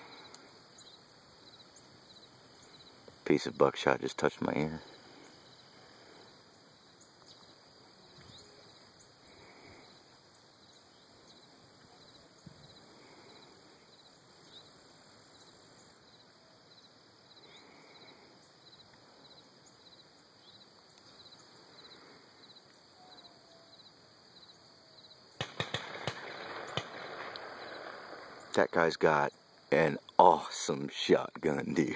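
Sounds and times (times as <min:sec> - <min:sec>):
insects chirping in pulses: 0:00.0 - 0:31.9
sharp cracks: 0:25.4 - 0:29.2.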